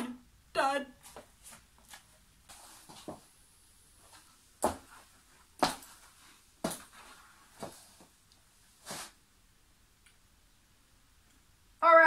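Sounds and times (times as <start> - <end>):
footsteps walking slowly: 1.0 - 3.3, 4.0 - 8.2.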